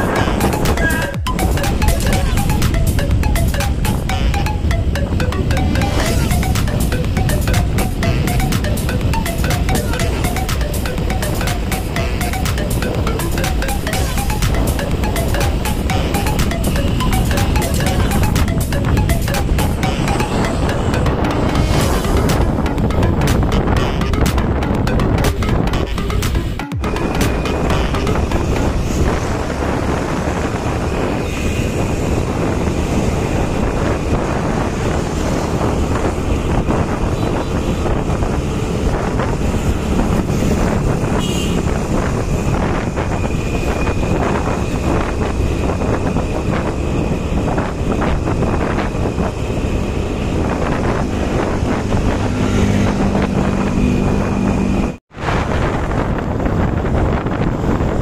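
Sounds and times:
motorcycle running: 0.0s - 55.0s
wind buffeting microphone: 26.8s - 58.0s.

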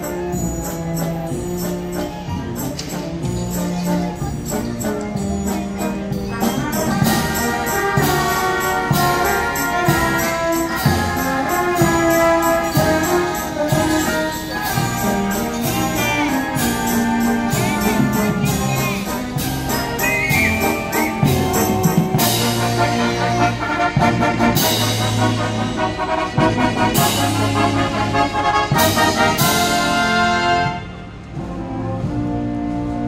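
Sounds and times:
drum kit with cymbals: 0.0s - 31.6s
brass band playing: 0.0s - 33.0s.

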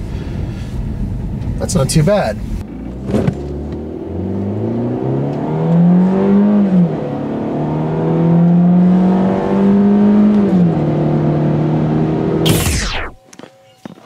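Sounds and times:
car engine accelerating: 2.5s - 13.2s.

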